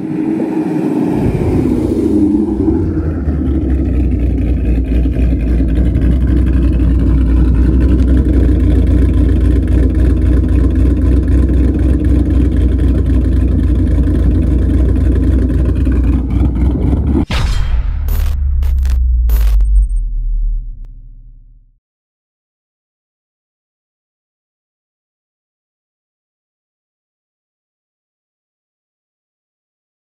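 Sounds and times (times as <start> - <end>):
car engine idling with deep rumble: 2.4 - 17.3.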